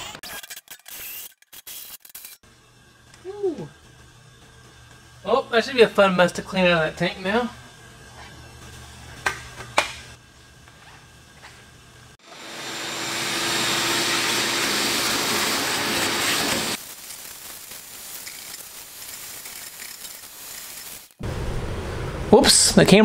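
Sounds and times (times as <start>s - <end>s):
shop vacuum sucking: 12.2s - 21.2s.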